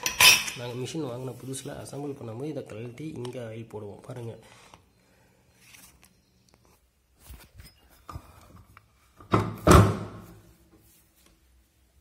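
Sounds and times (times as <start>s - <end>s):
loud thud of object set down: 9.3s - 10.4s.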